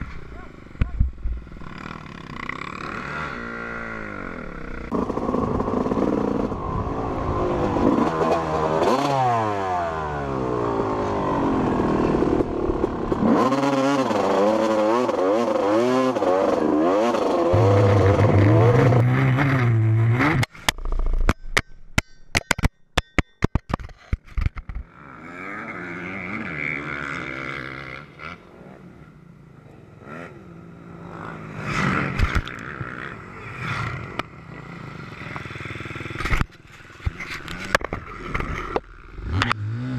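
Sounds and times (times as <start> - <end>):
motocross bike engine revving: 0.0 - 20.6, 24.8 - 39.9
sharp knocks and clatter: 20.4 - 24.8.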